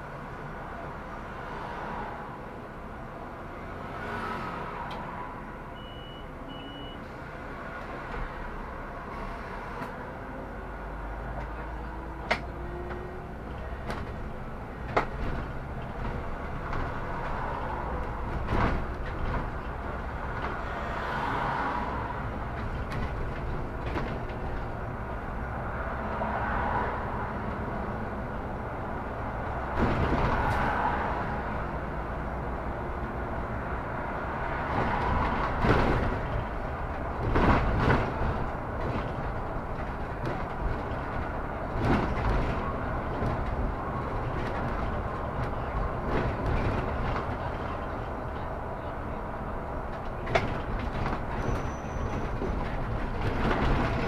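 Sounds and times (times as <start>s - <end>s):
bus engine running: 4.6s - 54.0s
short high beeps: 5.8s - 7.0s.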